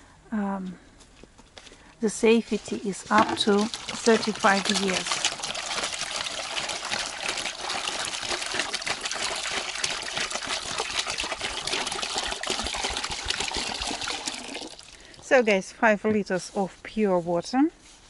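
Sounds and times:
water pouring into plastic bucket: 2.6 - 15.3.

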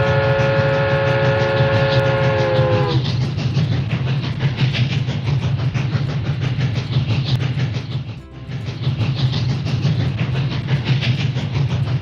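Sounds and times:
train whistle: 0.0 - 3.0
train rumble and rail clatter: 0.0 - 12.0.

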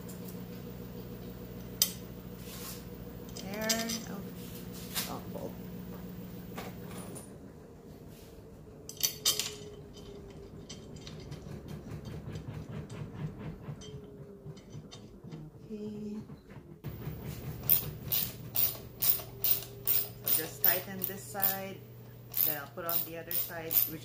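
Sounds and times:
metallic clinks of screws: 18.1 - 21.7.

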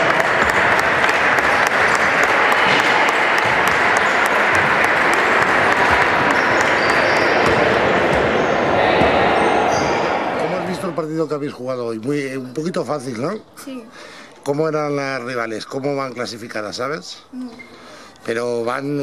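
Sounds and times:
applause: 0.0 - 8.7
voices: 0.0 - 19.0.

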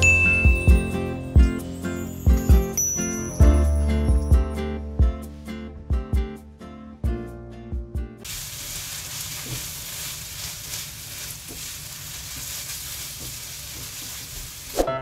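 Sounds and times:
music: 0.0 - 8.3, 14.8 - 15.0
food sizzling in a wok: 8.2 - 14.9
spatula stirring in a wok: 8.3 - 14.7.

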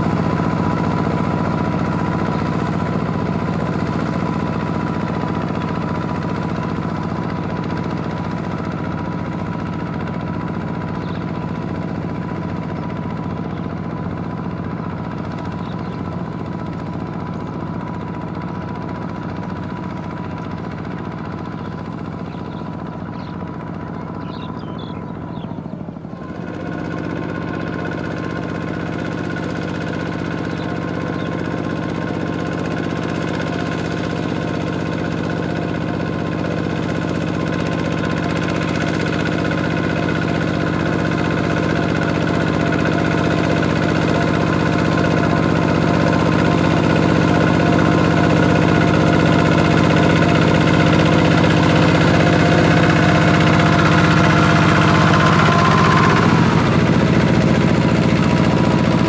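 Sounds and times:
walking tractor diesel engine: 0.0 - 59.0
wheels plowing through water: 26.3 - 59.0.

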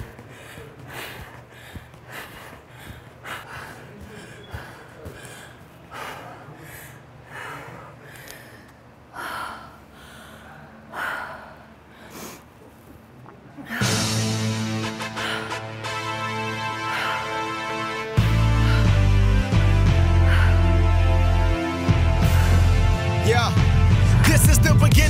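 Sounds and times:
woman panting heavily: 0.0 - 12.6, 13.6 - 22.8.

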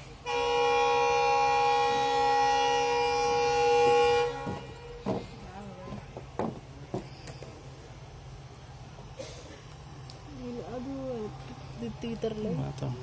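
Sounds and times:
locomotive horn blast: 0.0 - 5.2.

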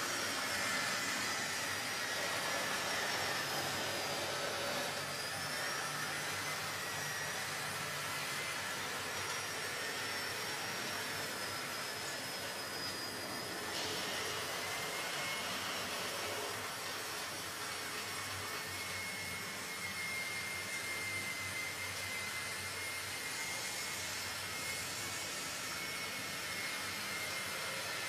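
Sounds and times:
small electric motors whirring: 0.0 - 28.0.

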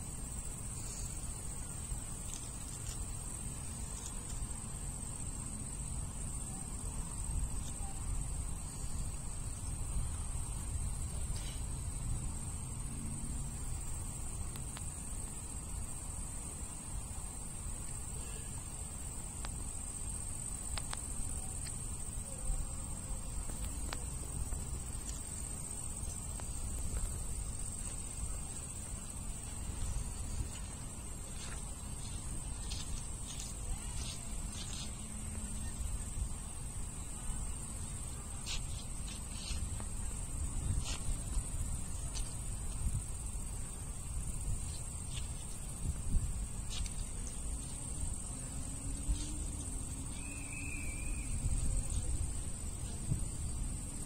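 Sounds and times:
crickets trilling: 0.0 - 54.0.

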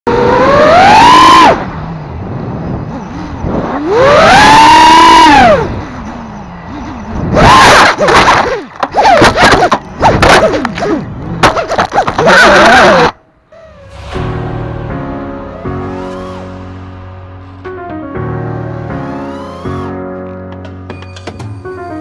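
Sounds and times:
quadcopter motors whining: 0.2 - 9.4.

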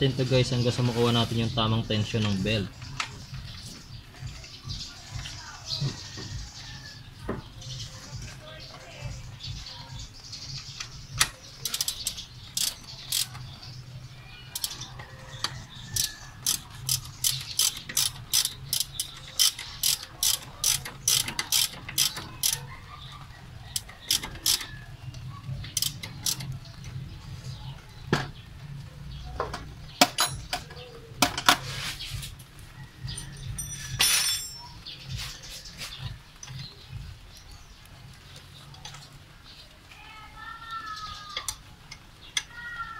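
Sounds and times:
ratchet wrench clicking: 11.2 - 13.4, 14.6 - 14.8, 15.9 - 22.6, 23.7 - 24.7, 25.8 - 26.5.

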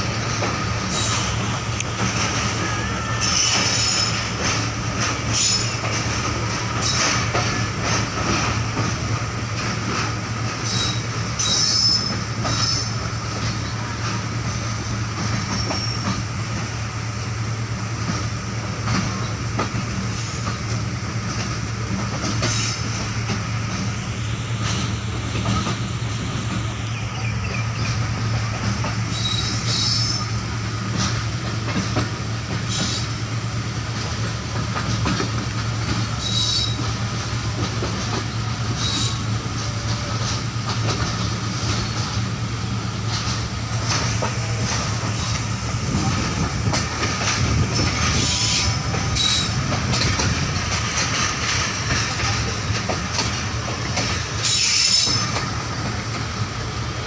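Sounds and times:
wheels clicking over rail joints: 0.0 - 16.8, 18.0 - 57.0
train carriage rumble: 0.0 - 57.0
high-pitched wheel squeals: 5.3 - 5.8, 10.6 - 13.0, 15.5 - 16.2, 29.1 - 30.3, 36.2 - 36.8, 48.2 - 49.6, 54.4 - 55.4.

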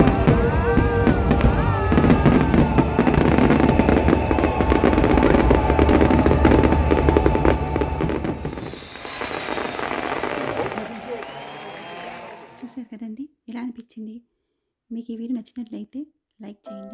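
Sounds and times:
fireworks crackling and banging: 0.0 - 12.6.

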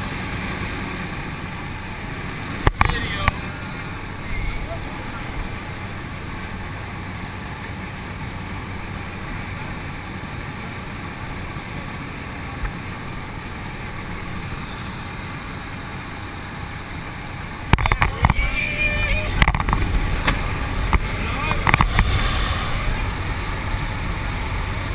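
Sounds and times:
plane engine and propeller drone: 0.0 - 24.9
wind rush: 19.5 - 24.9.

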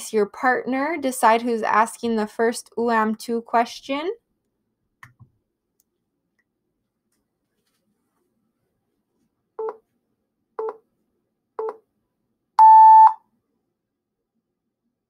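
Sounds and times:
long high timer beep: 12.6 - 13.2
short low timer beeps: 12.6 - 13.2.

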